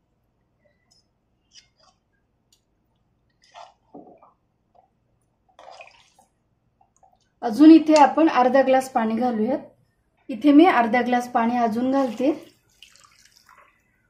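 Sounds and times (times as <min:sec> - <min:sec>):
soft clicks and wet squishes: 0:00.6 - 0:07.4.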